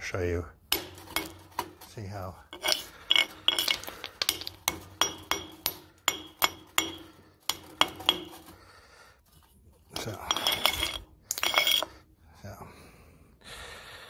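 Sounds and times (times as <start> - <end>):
ringing clinks of stone: 2.6 - 8.4, 10.0 - 11.9.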